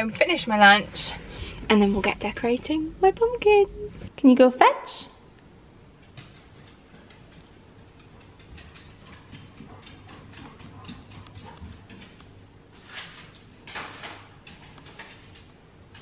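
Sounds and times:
dog claws clicking on floor: 0:06.0 - 0:16.0.

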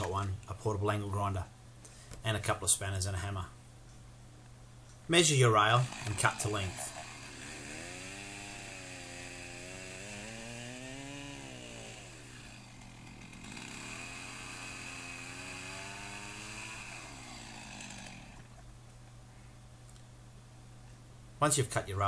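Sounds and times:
chainsaw cutting wood: 0:00.0 - 0:00.2, 0:05.4 - 0:18.7.

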